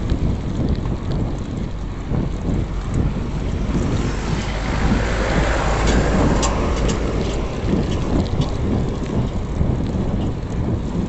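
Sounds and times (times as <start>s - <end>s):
road noise: 0.0s - 11.0s
wind rushing over microphone: 0.0s - 11.0s.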